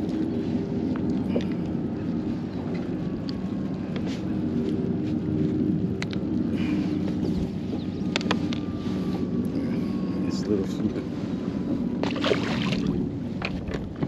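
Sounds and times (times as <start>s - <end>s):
low motor drone: 0.0s - 14.0s
wind noise on microphone: 10.9s - 14.0s.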